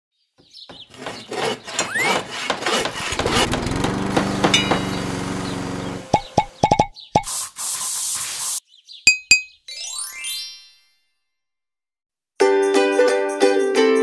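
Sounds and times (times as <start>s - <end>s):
small engine running: 1.8s - 6.6s
cartoon clicks and knocks: 6.1s - 7.3s, 9.1s - 9.6s.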